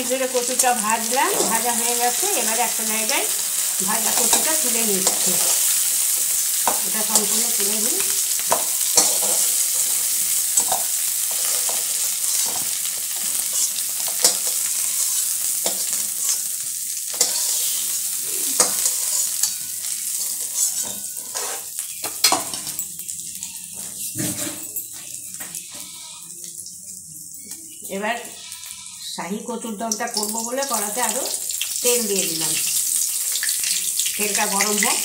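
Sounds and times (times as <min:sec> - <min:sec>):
food sizzling in hot oil: 0:00.0 - 0:35.0
spatula scraping a metal pan: 0:08.1 - 0:16.5, 0:17.1 - 0:22.6.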